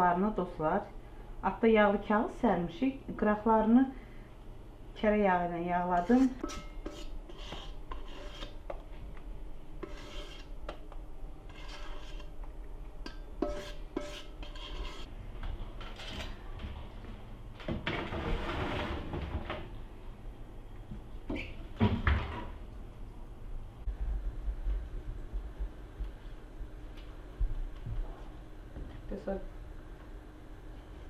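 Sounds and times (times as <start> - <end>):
metal bowl scraping cake tin: 5.8 - 8.6, 9.8 - 10.5, 11.4 - 12.4, 13.4 - 15.1, 15.8 - 16.4, 18.1 - 19.1.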